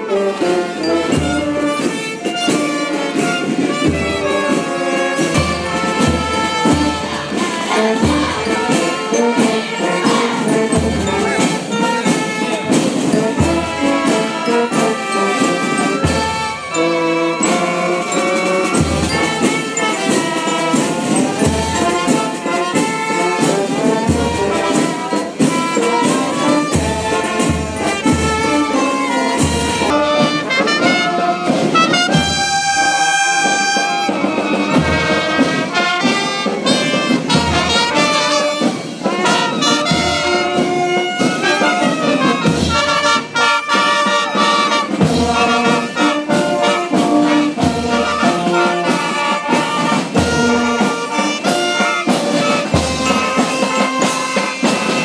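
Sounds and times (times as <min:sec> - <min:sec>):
brass marching band playing: 0:00.0 - 0:55.0.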